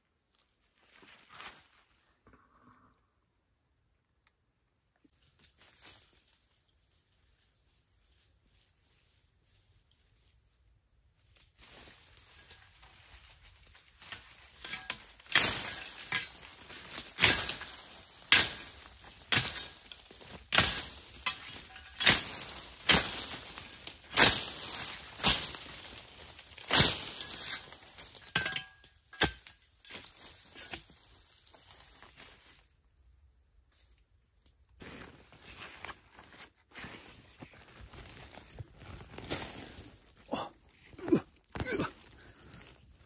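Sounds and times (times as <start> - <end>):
rustling of dry leaves: 0.2 - 2.2, 5.1 - 43.0
bamboo stems cracking: 11.2 - 32.4, 37.3 - 43.0.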